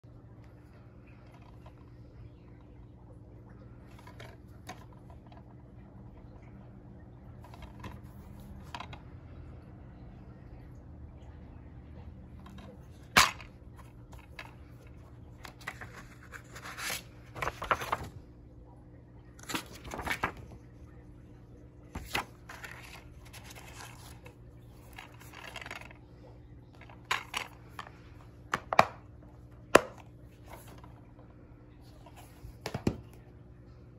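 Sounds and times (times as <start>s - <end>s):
paper rustling and scraping: 12.9s - 18.2s, 19.4s - 20.6s, 21.9s - 26.0s.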